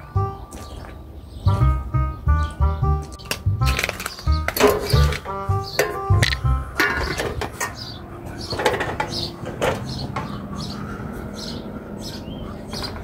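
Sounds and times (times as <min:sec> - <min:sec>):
bird chirps: 0:00.0 - 0:03.4, 0:04.0 - 0:13.0
sharp knocks and clatters: 0:03.2 - 0:10.4.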